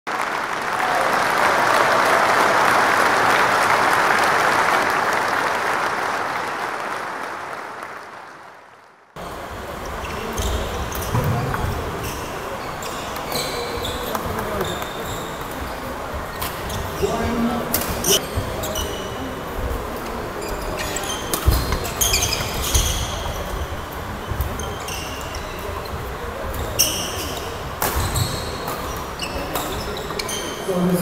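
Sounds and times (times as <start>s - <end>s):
crowd applauding and cheering: 0.1s - 9.2s
shoe squeaks on wooden floor: 10.0s - 19.3s, 20.4s - 26.0s, 26.6s - 30.7s.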